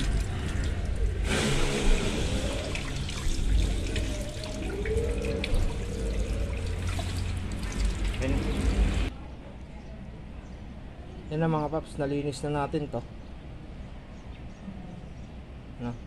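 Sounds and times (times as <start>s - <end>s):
hose water splashing: 0.0s - 9.1s.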